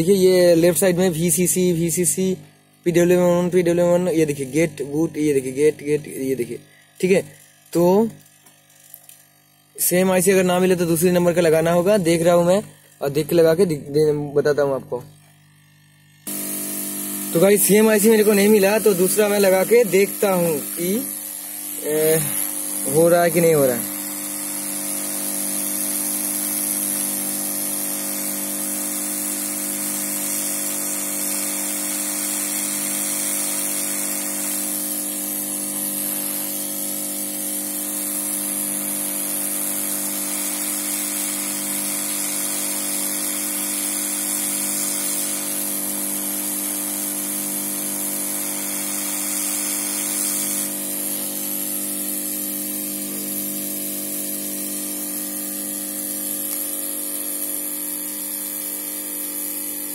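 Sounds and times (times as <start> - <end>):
hiss of hot air: 16.3 - 52.4.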